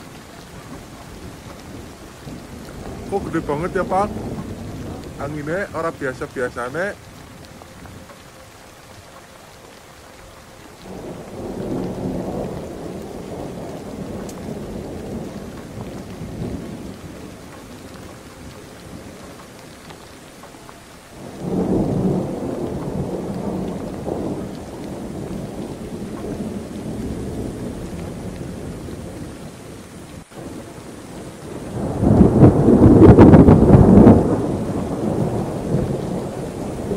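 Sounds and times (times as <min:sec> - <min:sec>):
wind gusting through palm fronds: 0:00.0 - 0:36.9
wind rumbling on microphone: 0:00.0 - 0:36.9.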